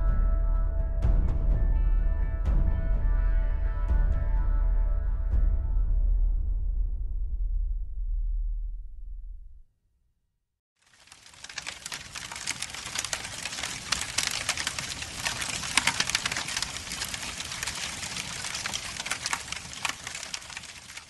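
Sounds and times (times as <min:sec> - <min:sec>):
fire crackling: 0:10.8 - 0:21.0.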